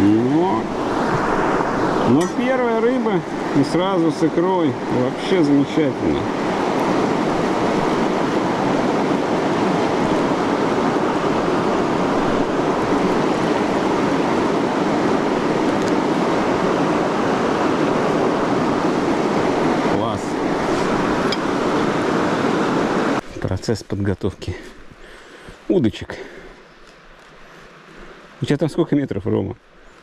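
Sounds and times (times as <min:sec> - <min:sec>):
rushing water: 0:00.0 - 0:23.3.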